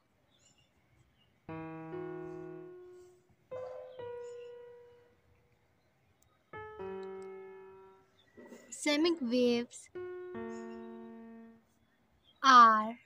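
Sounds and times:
slow piano music: 0:01.4 - 0:05.8, 0:06.4 - 0:11.8.

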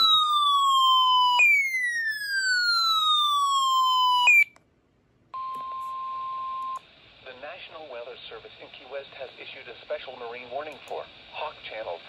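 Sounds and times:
electronic falling whistle: 0:00.0 - 0:04.5
radio hiss: 0:06.9 - 0:12.0.

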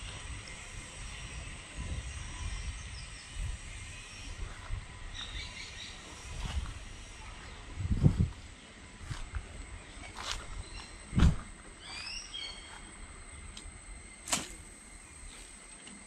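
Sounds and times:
wind on microphone: 0:00.0 - 0:11.7
bird chirps: 0:05.0 - 0:06.4, 0:11.8 - 0:12.9.

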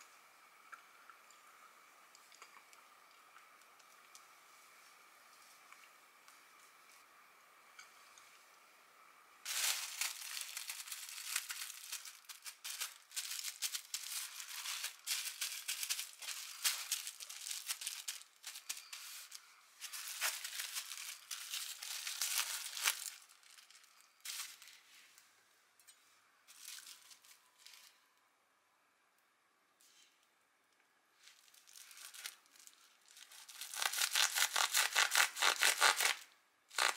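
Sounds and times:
plastic wrap crinkling: 0:09.5 - 0:24.9, 0:26.5 - 0:28.0, 0:31.2 - 0:36.9.

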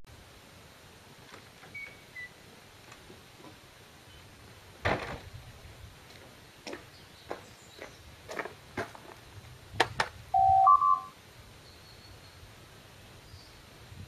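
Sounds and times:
footsteps on stone: 0:06.0 - 0:09.3.

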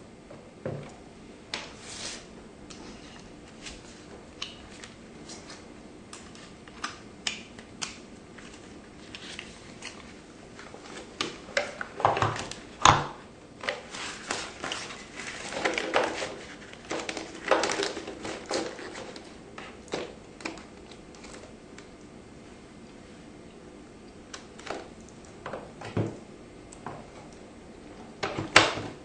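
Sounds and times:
paper rustling: 0:08.4 - 0:11.4, 0:13.7 - 0:21.5.

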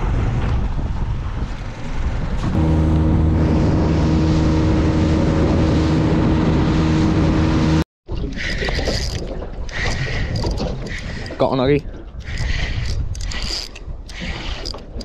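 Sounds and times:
wind and water rushing: 0:00.0 - 0:15.0
outboard motor running: 0:02.4 - 0:07.8.

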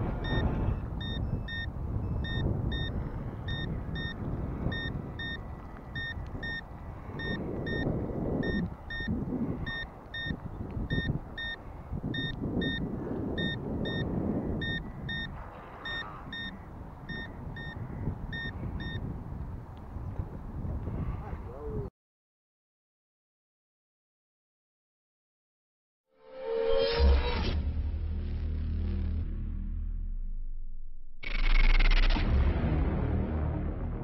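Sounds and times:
short high warning beeps: 0:00.2 - 0:05.4, 0:06.0 - 0:06.6, 0:07.2 - 0:09.1, 0:09.7 - 0:11.6, 0:12.2 - 0:12.8, 0:13.4 - 0:14.0, 0:14.6 - 0:17.8, 0:18.4 - 0:19.0.

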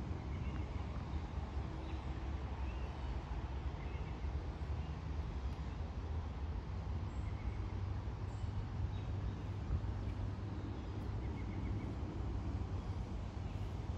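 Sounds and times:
steady low rumble: 0:07.9 - 0:13.9.

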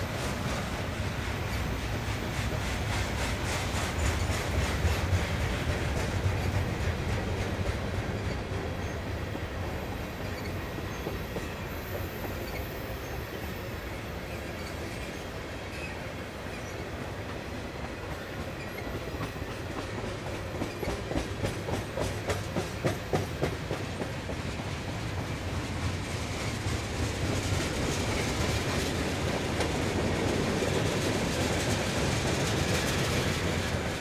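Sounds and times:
freight train rumbling past: 0:00.0 - 0:34.0
wheels clicking over rail joints: 0:14.5 - 0:34.0.

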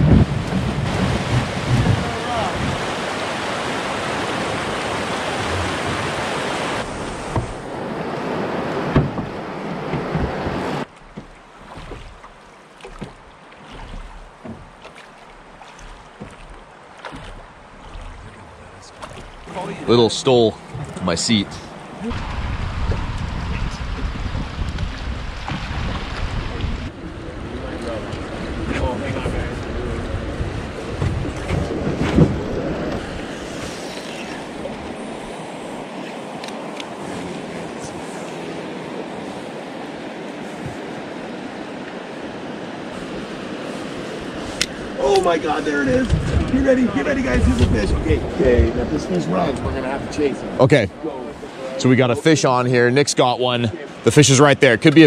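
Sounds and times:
wind buffeting microphone: 0:00.0 - 0:12.3, 0:15.8 - 0:51.5
river rapids rushing: 0:00.0 - 0:22.7
water washing around boat: 0:00.0 - 0:55.0
knocks on boat hull: 0:06.9 - 0:07.7, 0:08.8 - 0:12.3, 0:15.8 - 0:18.2
thump: 0:07.3 - 0:07.6, 0:08.9 - 0:09.3.

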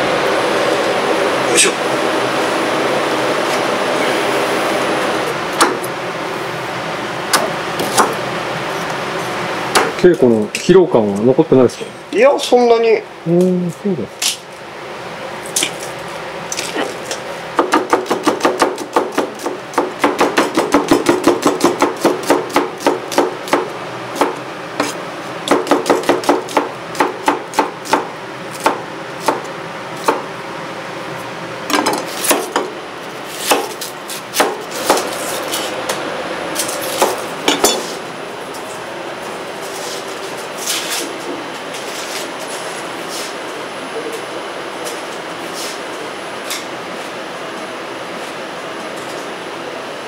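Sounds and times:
knife chopping on wooden board: 0:05.6 - 0:05.9, 0:07.3 - 0:08.2, 0:17.6 - 0:29.4, 0:31.7 - 0:32.7, 0:33.4 - 0:35.1.

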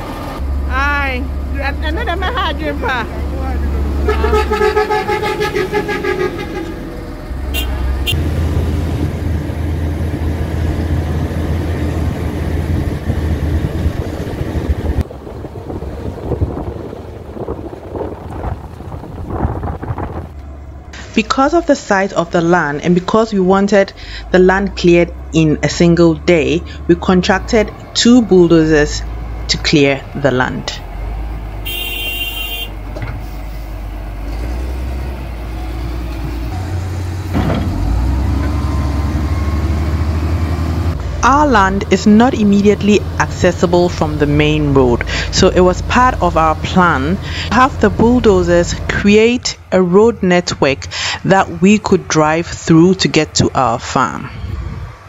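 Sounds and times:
road noise: 0:00.0 - 0:55.0
vehicle engine drone: 0:00.0 - 0:55.0
wind noise: 0:10.4 - 0:21.3, 0:53.3 - 0:55.0.

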